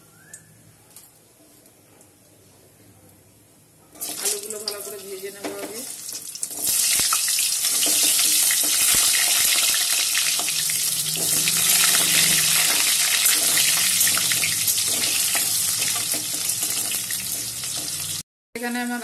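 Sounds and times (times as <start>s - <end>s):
potatoes sizzling in hot oil: 4.0s - 18.2s
spatula scraping pan: 10.3s - 18.1s.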